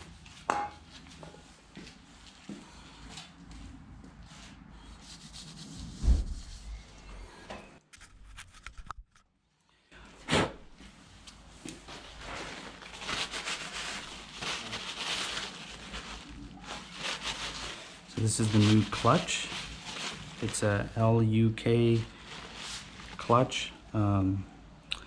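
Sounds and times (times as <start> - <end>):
paper towel rubbing: 5.0 - 6.9, 11.9 - 20.9, 21.9 - 23.5.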